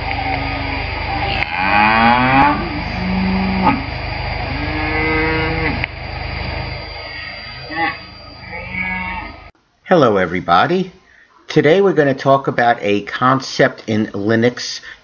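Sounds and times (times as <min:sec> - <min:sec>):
cows mooing: 0:00.6 - 0:06.0, 0:07.0 - 0:09.4.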